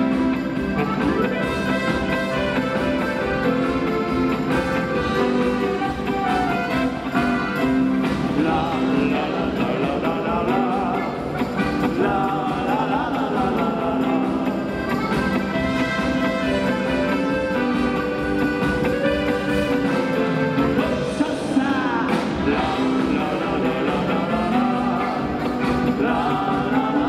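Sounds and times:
trumpet: 0.0s - 9.3s, 14.7s - 21.5s
accordion: 0.0s - 27.0s
folk band playing live: 0.0s - 27.0s.

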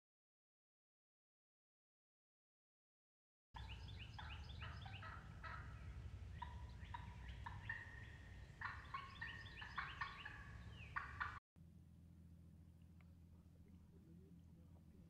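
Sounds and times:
wild turkeys calling: 3.6s - 11.4s.

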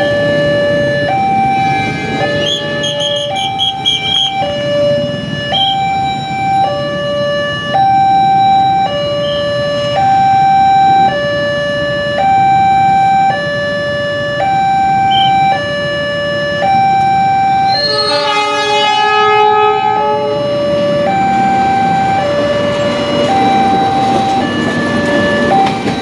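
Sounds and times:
level-crossing two-tone alarm: 0.0s - 26.0s
motorcycles and traffic hum: 0.0s - 26.0s.

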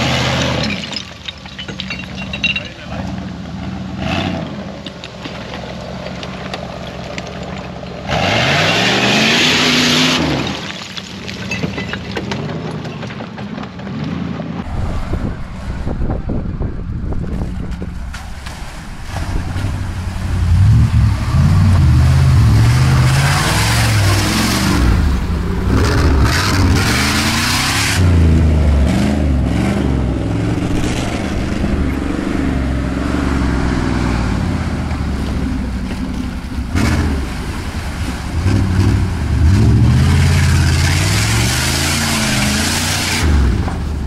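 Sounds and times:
engine revving hard: 8.1s - 10.3s, 20.6s - 31.5s, 38.4s - 43.6s.

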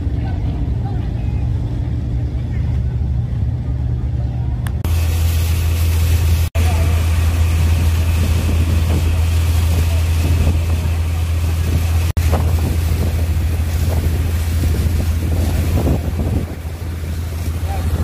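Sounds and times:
low engine drone: 0.0s - 18.0s
wind noise on microphone: 4.7s - 18.0s
hoses spraying water: 4.8s - 18.0s.

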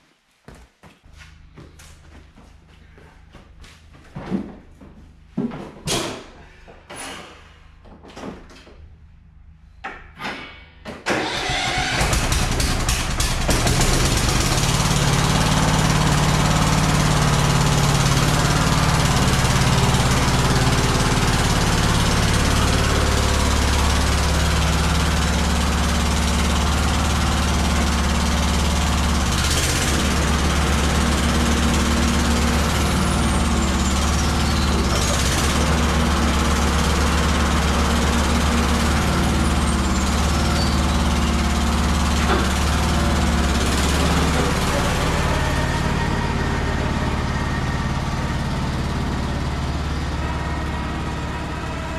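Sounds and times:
riding mower engine running: 11.1s - 51.9s.

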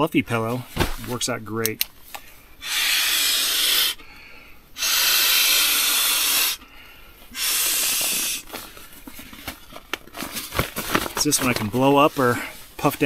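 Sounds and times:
person inhaling: 2.2s - 8.4s
person blowing into pillow valve: 2.6s - 4.0s, 4.8s - 6.7s, 7.3s - 8.5s.

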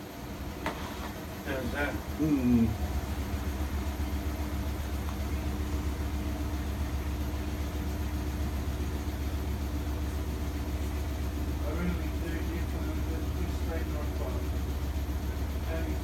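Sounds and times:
washing machine spinning: 0.0s - 16.0s.

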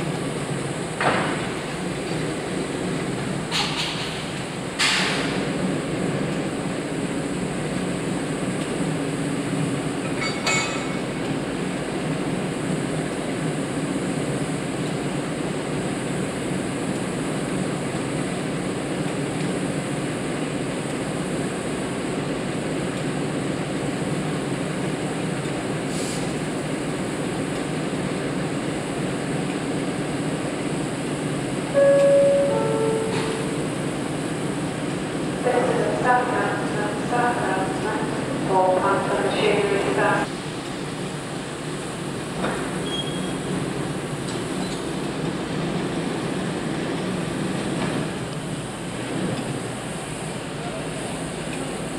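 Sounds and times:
standing train rumbling: 0.0s - 51.9s
short metallic clink: 10.2s - 11.1s.

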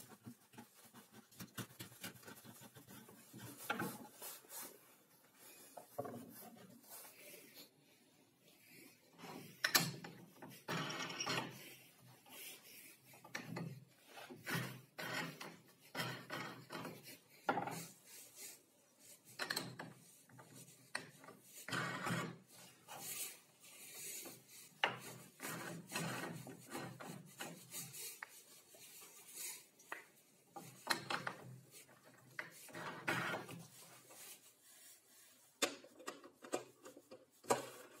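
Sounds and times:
wooden knobs knocking and clicking: 35.6s - 38.0s.

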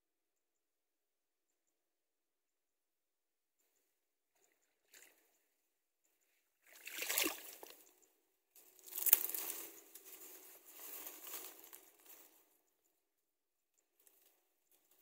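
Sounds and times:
dry reeds rustling and crackling: 8.6s - 12.6s.

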